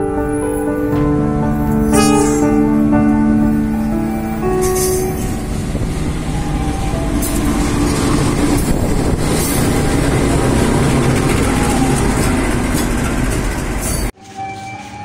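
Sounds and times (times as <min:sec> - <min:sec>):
music: 0:00.0 - 0:08.2, 0:14.2 - 0:15.0
diesel locomotive engine rumble: 0:00.0 - 0:14.2.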